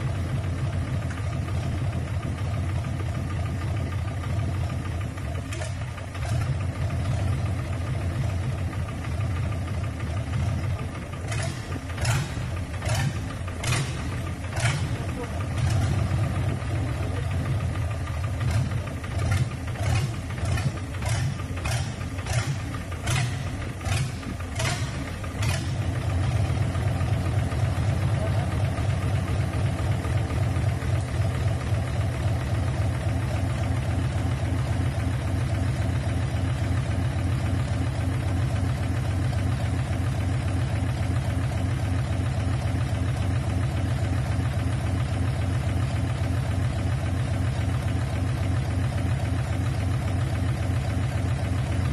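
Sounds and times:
diesel engine rumbling: 0.0s - 51.9s.

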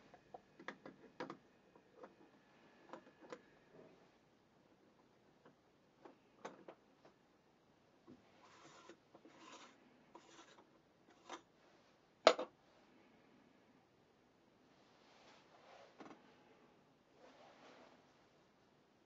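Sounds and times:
rubbing scrapes: 8.3s - 11.4s, 14.8s - 16.0s, 17.2s - 18.3s.

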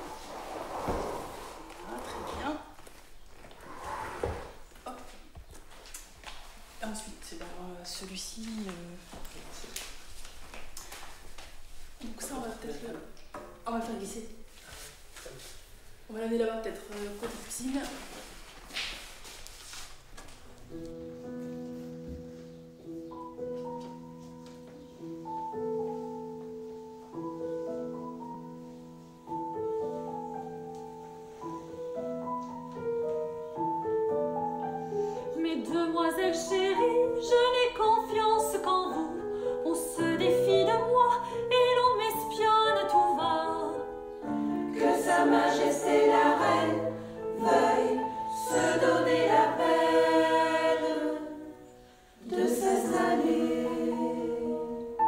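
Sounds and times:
slow instrumental music: 19.2s - 55.0s
women's choir singing: 42.9s - 55.0s.

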